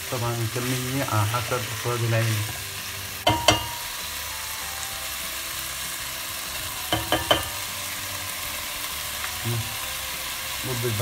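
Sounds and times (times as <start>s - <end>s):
beans sizzling in hot oil: 0.0s - 11.0s
spoon knocking against pan: 3.2s - 3.9s, 6.9s - 7.7s.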